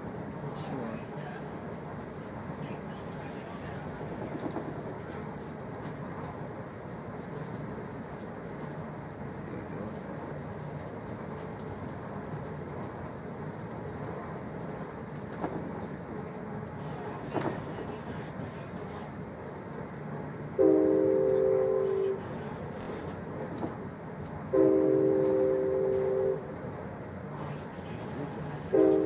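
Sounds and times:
train rumble from inside: 0.0s - 29.0s
train horn: 20.5s - 22.4s, 24.5s - 26.5s, 28.7s - 29.0s.

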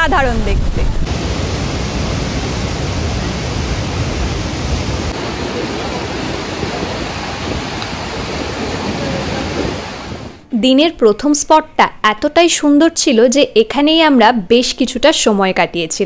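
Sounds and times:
deep rumble of water: 0.0s - 10.4s
waterfall rushing: 0.6s - 10.4s.

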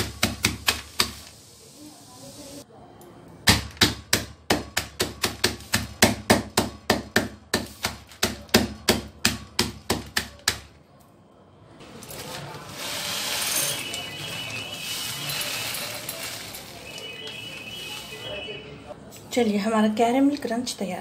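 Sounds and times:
rolling pin pounding candy in bag: 0.0s - 1.3s.

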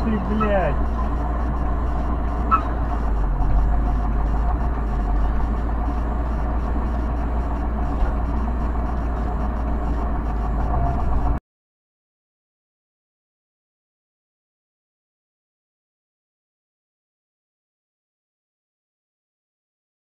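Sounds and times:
car engine rumble: 0.0s - 11.4s
road noise inside car: 0.0s - 11.4s.

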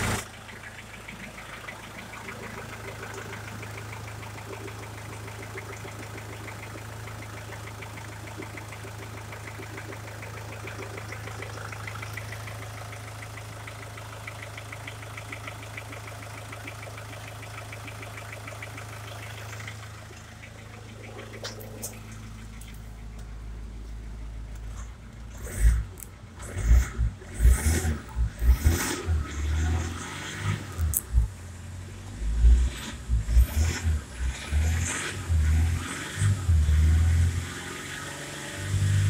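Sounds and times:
diesel engine idling: 0.0s - 34.2s.

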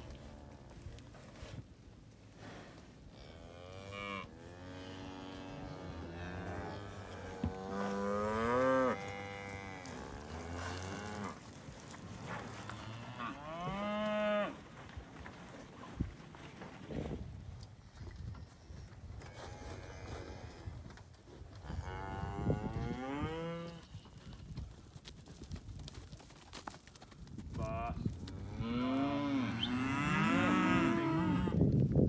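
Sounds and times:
cattle mooing: 28.5s - 31.6s.

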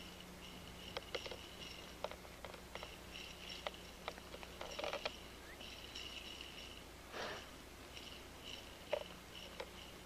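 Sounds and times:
insects trilling: 0.0s - 6.9s
hands clicking and tapping on motor: 0.8s - 5.8s, 8.8s - 9.8s.

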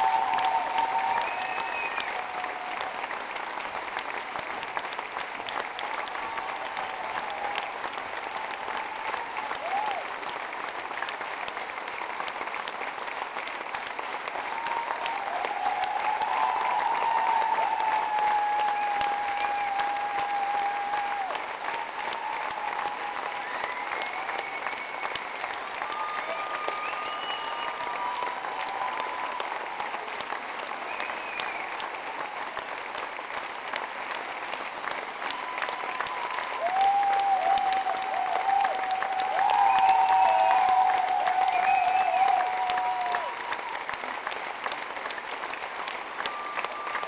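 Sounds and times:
audience applauding: 0.0s - 47.0s.

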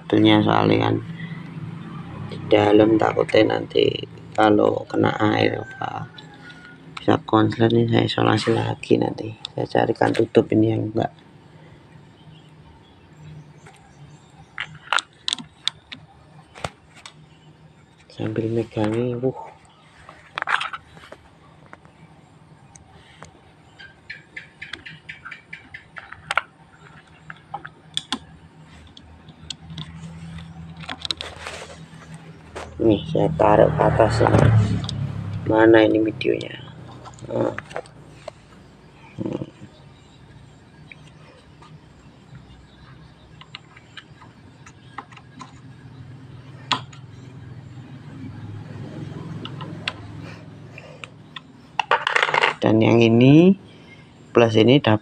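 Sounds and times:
steady low hum: 0.0s - 55.0s
battery cables clicking and knocking: 14.5s - 17.3s, 25.6s - 31.4s, 43.3s - 45.7s, 46.6s - 47.2s, 51.0s - 52.6s
battery connectors clicking: 26.1s - 31.3s.

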